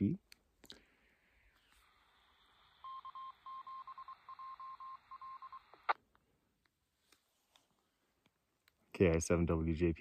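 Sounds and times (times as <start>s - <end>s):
radio channel hiss: 1.0s - 3.5s
morse code beeps: 2.8s - 5.7s.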